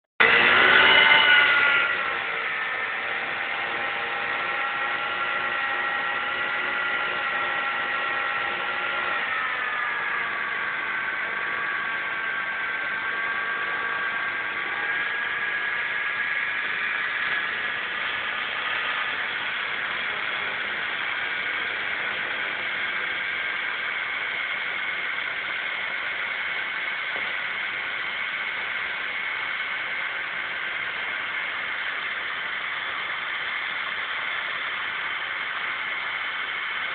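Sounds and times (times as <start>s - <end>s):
scooter engine whining at high revs: 0.2s - 28.0s
wheel spinning on paving stones: 1.9s - 36.9s.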